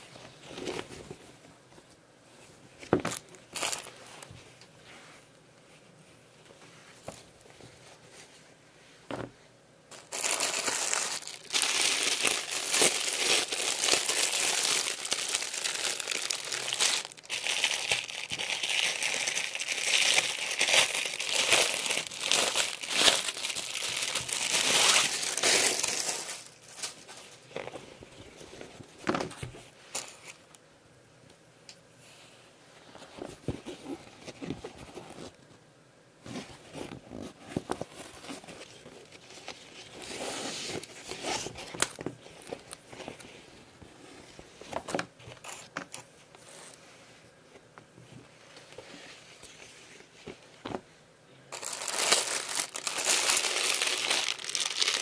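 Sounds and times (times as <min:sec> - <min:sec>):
plastic packaging crinkling: 0:03.1 - 0:04.1, 0:09.9 - 0:27.8, 0:51.5 - 0:55.0
fabric bag rustling: 0:09.9 - 0:27.4, 0:51.5 - 0:55.0.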